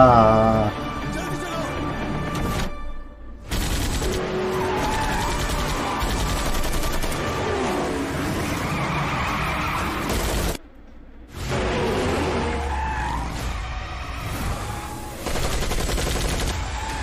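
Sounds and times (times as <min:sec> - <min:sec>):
machine-gun fire: 0:03.5 - 0:07.3, 0:15.2 - 0:16.7
tyres skidding: 0:04.2 - 0:15.2
cars driving: 0:07.0 - 0:15.2.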